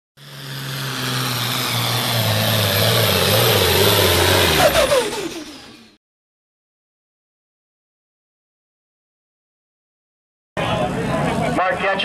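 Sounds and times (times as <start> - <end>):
vehicle engine working hard: 0.2 - 6.0, 10.6 - 12.0.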